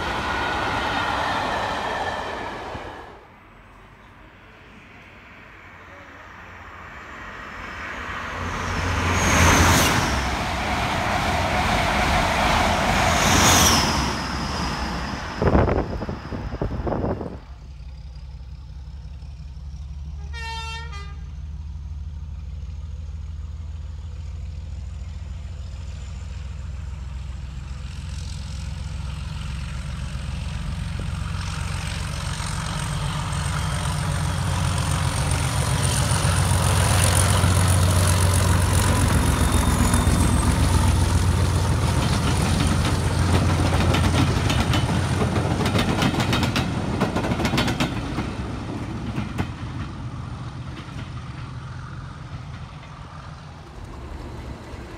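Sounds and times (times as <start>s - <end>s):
locomotive engine passing: 0.0s - 20.2s, 21.3s - 54.9s
locomotive horn: 20.2s - 21.4s.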